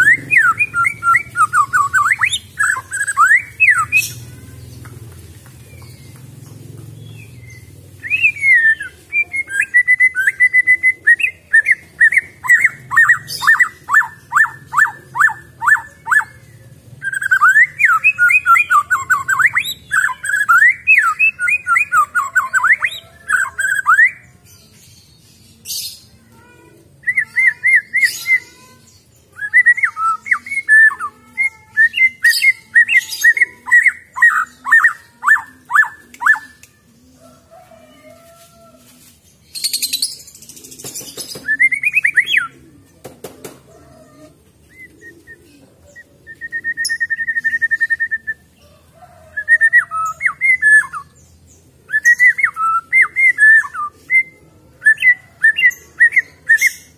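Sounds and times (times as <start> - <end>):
bird singing whistled phrases: 0.0 - 4.2, 8.0 - 16.3, 17.0 - 24.2, 29.4 - 36.7, 41.4 - 42.6, 46.0 - 48.5, 51.9 - 56.9.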